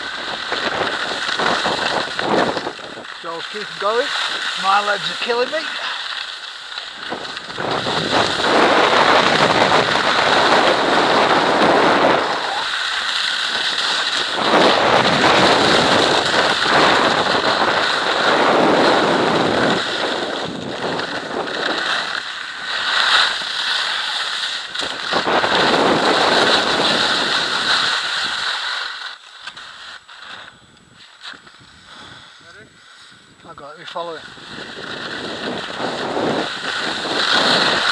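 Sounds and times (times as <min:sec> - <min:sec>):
wind rushing over microphone: 0:00.0 - 0:05.6, 0:06.9 - 0:12.8, 0:13.5 - 0:22.2, 0:24.6 - 0:28.4, 0:30.6 - 0:37.9
skis scraping over hard snow: 0:00.0 - 0:37.9.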